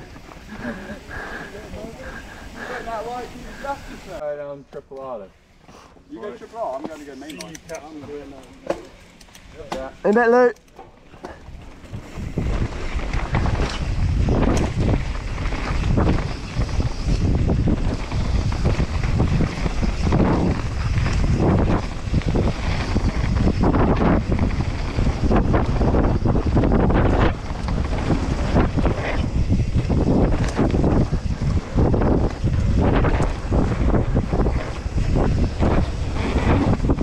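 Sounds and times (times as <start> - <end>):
bike knocking and rattling: 6.3 - 37.0
tyres rumbling on dirt: 6.8 - 37.0
wind buffeting microphone: 11.2 - 37.0.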